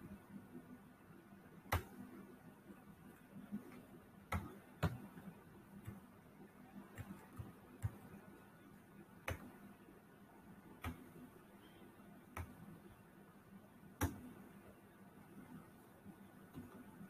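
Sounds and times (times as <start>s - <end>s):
computer mouse clicks: 9.2s - 9.6s, 12.3s - 12.7s.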